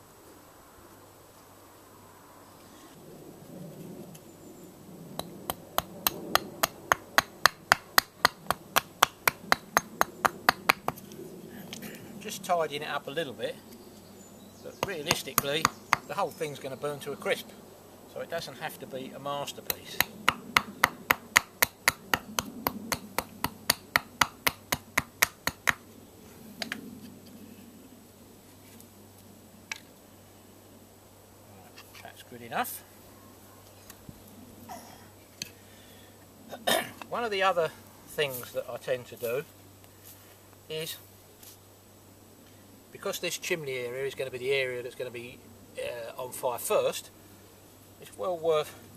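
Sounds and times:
hatchet chopping wood: 5.2s - 11.1s, 14.8s - 16.2s, 19.6s - 25.8s.

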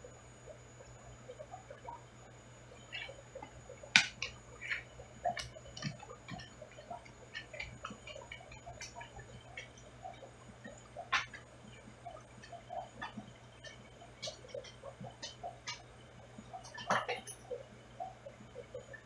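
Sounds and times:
faint steady hum: 0.0s - 19.0s
small ticks and clicks: 0.0s - 19.0s.

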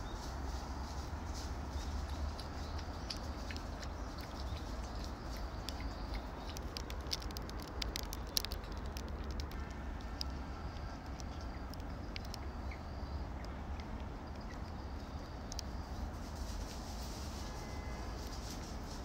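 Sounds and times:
light clicks and rustles: 0.1s - 12.6s.

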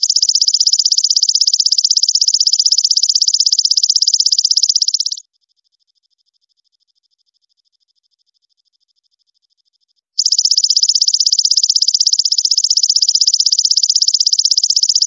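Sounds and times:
katydid high-pitched trill: 0.0s - 5.2s, 10.2s - 15.0s.

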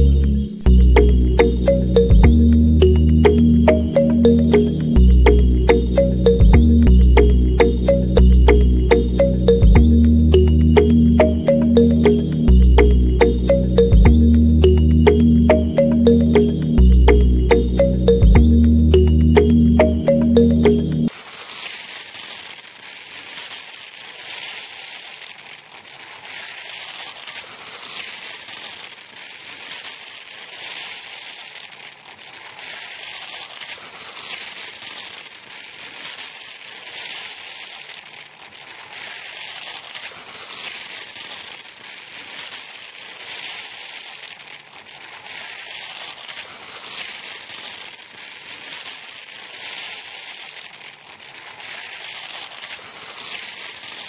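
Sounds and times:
sand trickling into plastic: 0.0s - 18.1s, 18.7s - 54.0s.

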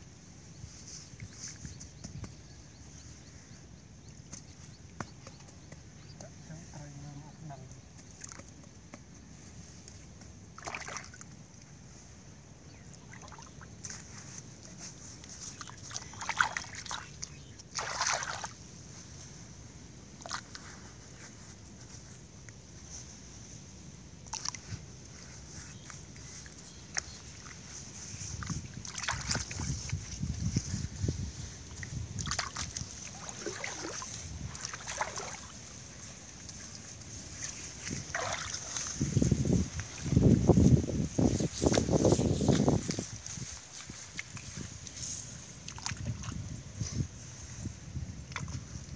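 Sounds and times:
muddy water sloshing by hand: 7.8s - 19.4s, 20.1s - 22.3s, 24.2s - 48.9s
hand splashing muddy water: 10.6s - 11.4s, 15.5s - 18.6s, 25.9s - 40.7s
loud water splash: 38.1s - 38.8s.

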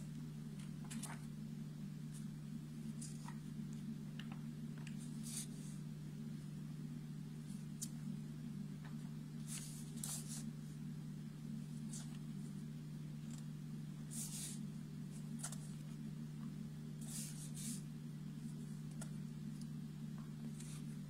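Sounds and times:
steady low hum: 0.0s - 21.0s
paper pages turning: 0.6s - 1.3s, 2.9s - 3.5s, 8.8s - 10.5s, 15.2s - 16.0s.

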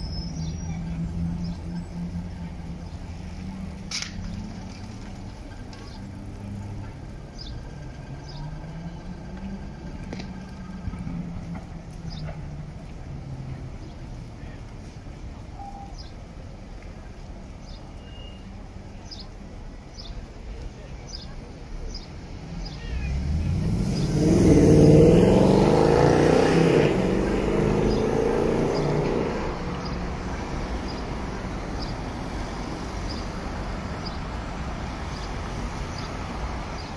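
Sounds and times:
street traffic: 0.0s - 36.9s
tram humming on track: 0.0s - 36.9s
car passing close: 22.4s - 36.9s.

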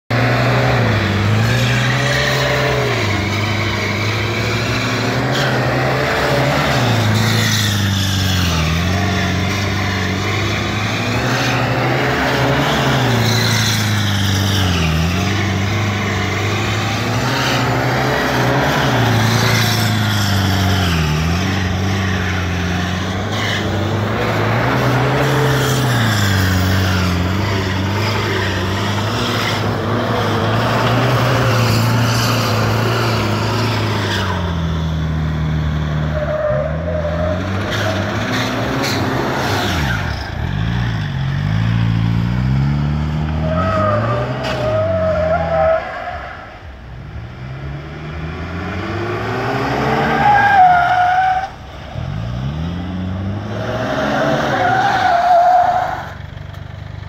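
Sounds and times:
turbocharged engine revving hard: 0.1s - 36.2s, 47.4s - 56.2s
tyres screeching on tarmac: 0.1s - 42.2s, 43.2s - 46.9s, 49.0s - 52.6s, 53.3s - 56.6s.

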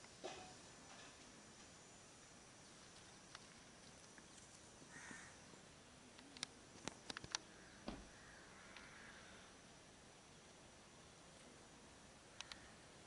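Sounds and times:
faint outdoor hiss: 0.0s - 13.0s
sharp clicks: 6.1s - 7.5s, 12.4s - 12.6s.

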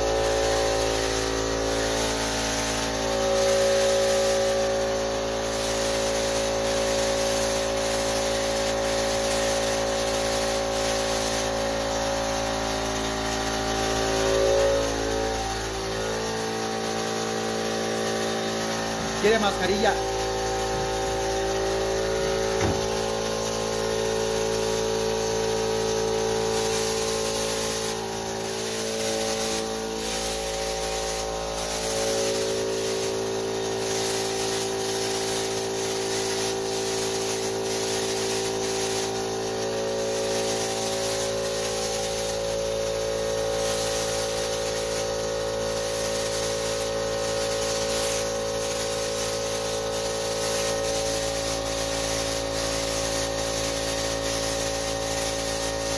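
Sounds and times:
spray gun hissing: 0.0s - 55.9s
motor drone: 11.9s - 23.4s.

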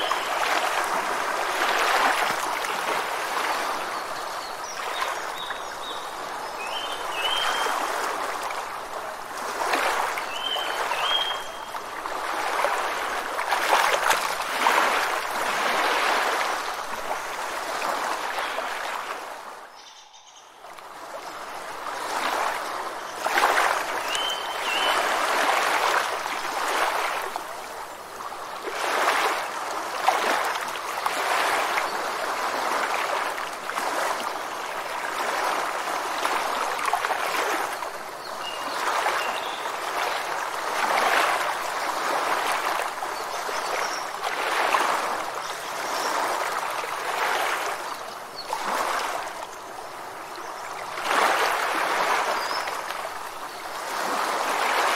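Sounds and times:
rushing splashing water: 0.0s - 19.7s, 20.5s - 54.9s
faint bird chirps: 19.7s - 20.7s.

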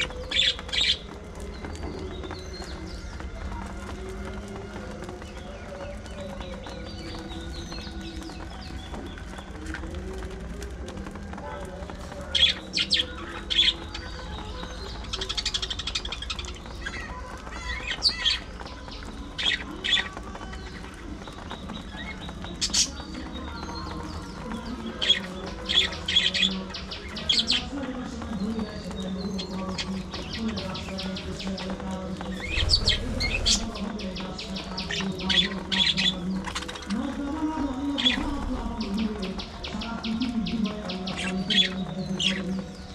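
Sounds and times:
budgerigars chirping and warbling: 28.9s - 42.6s.

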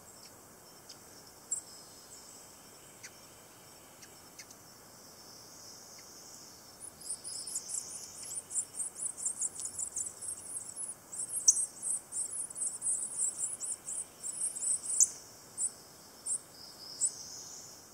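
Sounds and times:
nestlings peeping: 5.9s - 17.7s.

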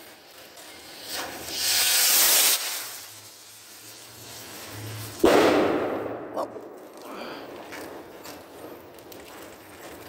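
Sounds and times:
skyrocket launching hiss: 1.0s - 6.3s
firework bursting with loud bang: 3.8s - 8.8s.

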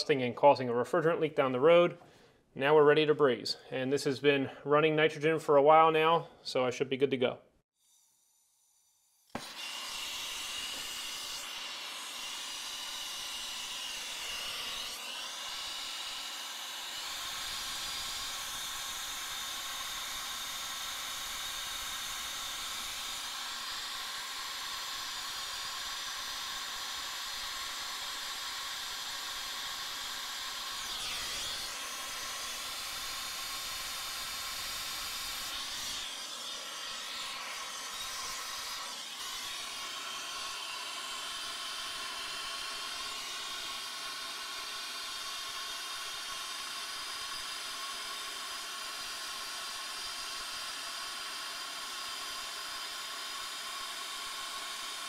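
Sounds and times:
torch flame hissing: 9.2s - 45.3s.

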